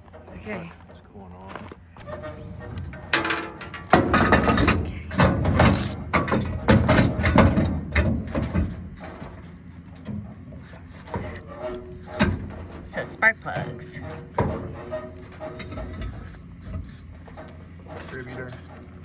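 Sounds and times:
marker pen writing on cardboard: 16.2 - 17.1.

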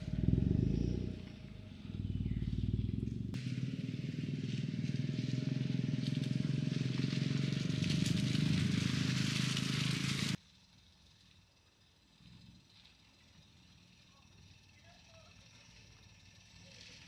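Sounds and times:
tyres crunching on gravel: 0.0 - 10.4
car engine running low: 0.0 - 17.0.

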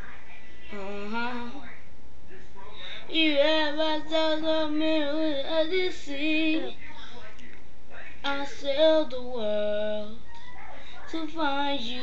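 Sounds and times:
girl singing unaccompanied: 0.7 - 1.6, 3.1 - 6.8, 8.2 - 10.2, 11.1 - 12.0.

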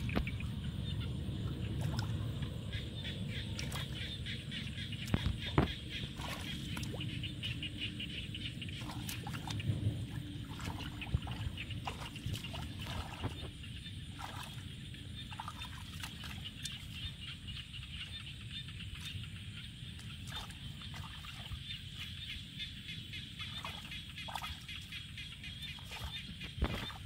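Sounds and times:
low rumble: 0.0 - 15.5
hands splashing in muddy water: 8.8 - 17.2, 25.6 - 27.0.

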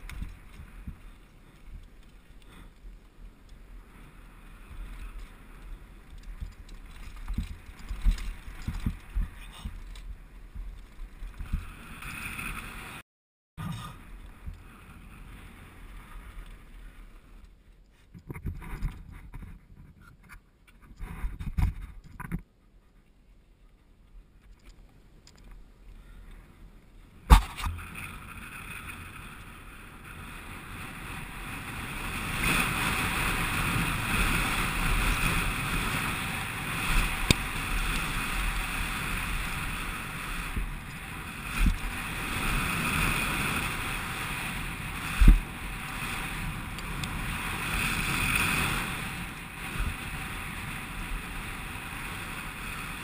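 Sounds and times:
wind over microphone: 0.0 - 13.0, 18.1 - 22.6, 26.0 - 53.0
sharp thump: 27.3 - 27.8
bike knocking over bumps: 27.3 - 27.9.

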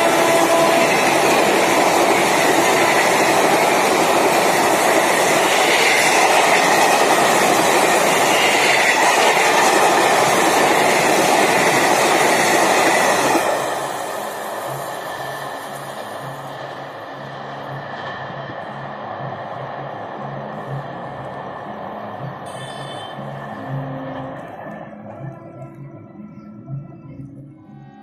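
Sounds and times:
train horn: 0.0 - 1.7, 8.1 - 9.6, 22.4 - 24.4
train wheels clattering on rails: 0.0 - 16.8
train rumble: 0.0 - 28.0.

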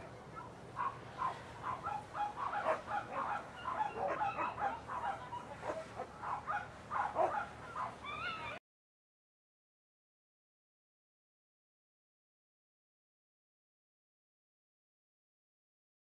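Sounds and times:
dogs barking: 0.0 - 8.6.

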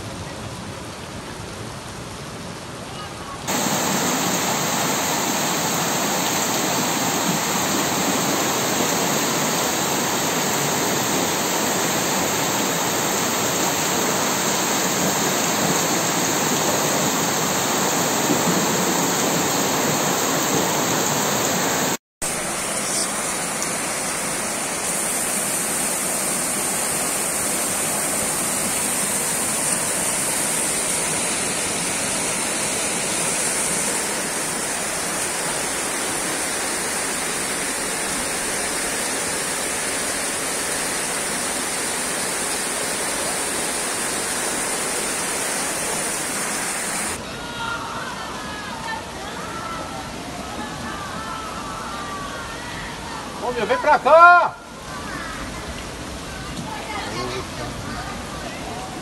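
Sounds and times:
floodwater pouring down street: 0.0 - 59.0
heavy rain: 0.0 - 59.0
river overflowing rushing: 0.0 - 59.0.

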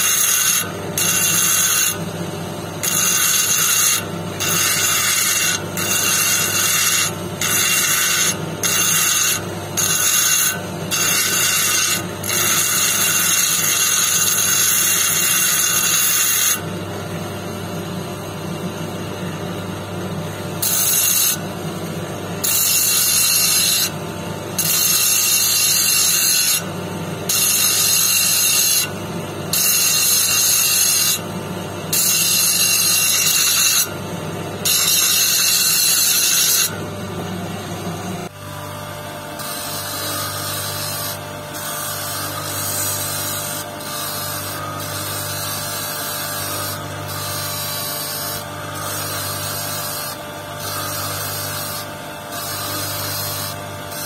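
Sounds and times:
stone scraping on grinding wheel: 0.0 - 2.1, 2.8 - 16.8, 20.6 - 31.2, 31.9 - 34.0, 34.6 - 54.0
electric motor hum: 0.0 - 54.0.

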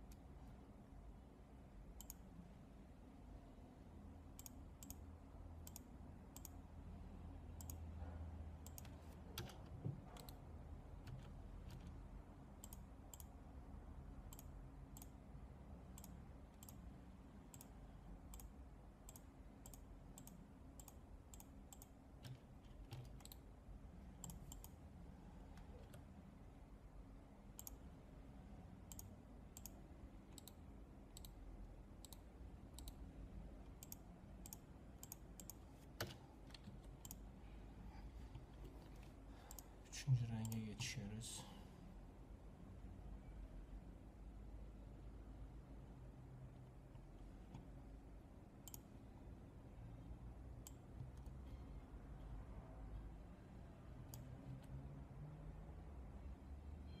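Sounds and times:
low room hum: 0.0 - 57.0
computer mouse clicking: 2.0 - 2.3, 4.4 - 6.6, 7.6 - 7.9, 8.6 - 10.4, 11.0 - 12.0, 12.6 - 13.4, 14.3 - 15.2, 15.9 - 16.8, 17.5 - 23.5, 24.2 - 24.8, 27.6 - 27.9, 28.9 - 31.4, 32.0 - 33.0, 33.6 - 37.3, 38.3 - 39.7, 48.6 - 48.9, 50.6 - 51.5, 54.0 - 54.8.

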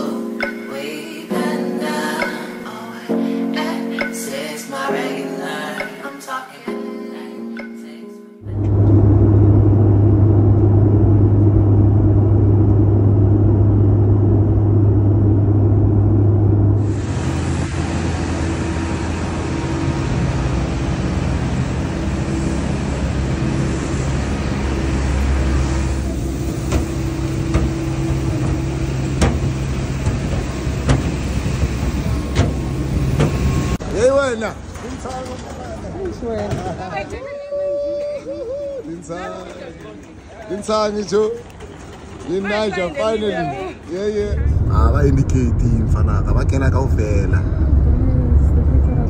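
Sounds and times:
jet airliner cabin drone: 8.4 - 33.8, 44.2 - 49.0
aircraft engine hum and hiss: 8.5 - 33.8.

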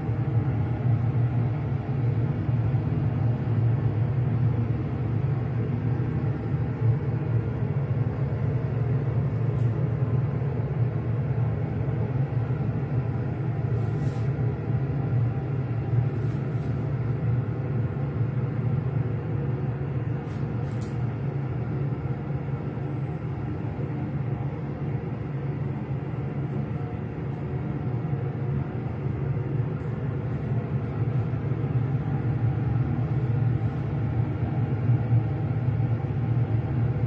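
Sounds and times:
machinery humming: 0.0 - 37.0
faint short hisses: 13.8 - 14.3.

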